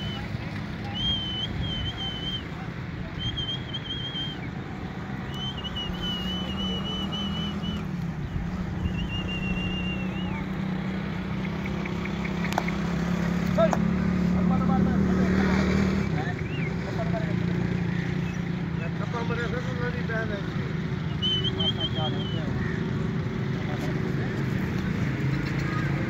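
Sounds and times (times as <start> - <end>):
high wavering whistle notes: 5.3 - 7.9, 8.8 - 10.4.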